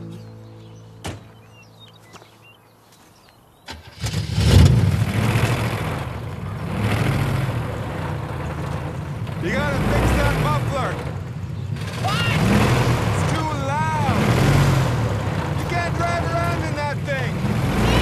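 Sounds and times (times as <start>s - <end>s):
rough car exhaust rumble: 3.7s - 18.0s.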